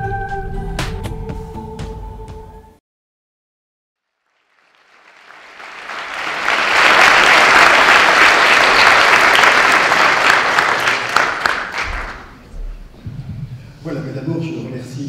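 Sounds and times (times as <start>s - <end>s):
audience applauding: 4.2s - 12.4s.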